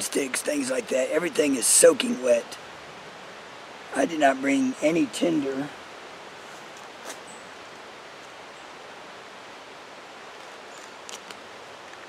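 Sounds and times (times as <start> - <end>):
creek rushing: 0.0 - 11.9.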